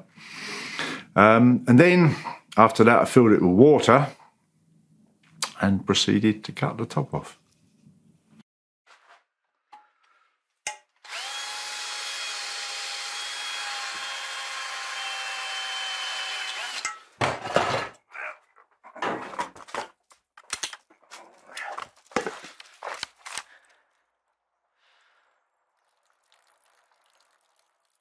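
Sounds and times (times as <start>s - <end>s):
cordless drill motor running: 11.1s - 16.8s.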